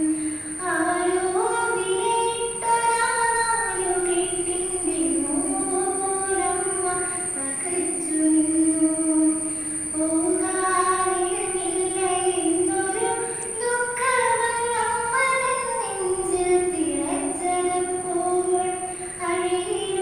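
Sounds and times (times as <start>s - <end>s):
steady high-pitched whine: 0.0s - 20.0s
woman singing into a microphone: 0.0s - 20.0s.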